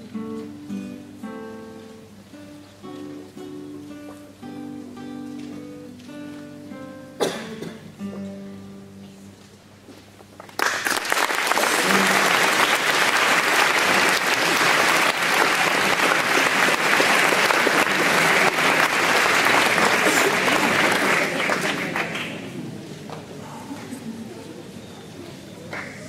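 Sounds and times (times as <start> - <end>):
classical guitars ringing: 0.0 - 9.4
audience applause: 10.4 - 22.7.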